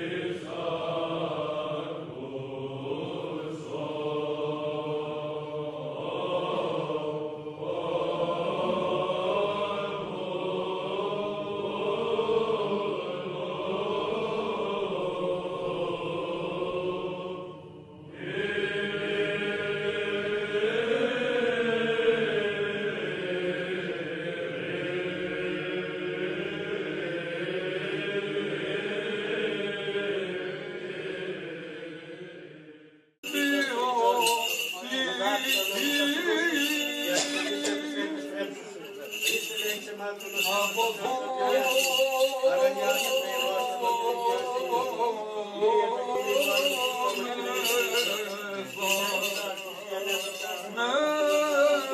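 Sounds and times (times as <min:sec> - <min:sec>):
slow chanted vocal music: 0:00.0 - 0:51.9.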